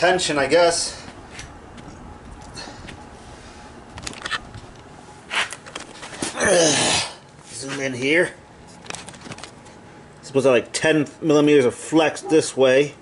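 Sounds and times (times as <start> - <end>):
man talking: 10.2 - 13.0.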